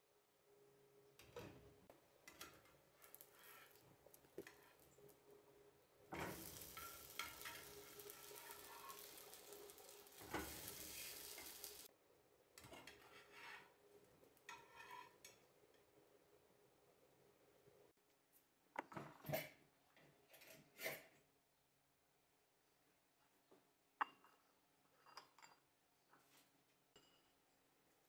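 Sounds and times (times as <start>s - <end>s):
spatula scraping a pan: 2.3s - 5.0s, 6.1s - 11.9s, 12.7s - 13.8s, 14.5s - 15.4s
fritters sizzling in oil: 6.1s - 11.9s.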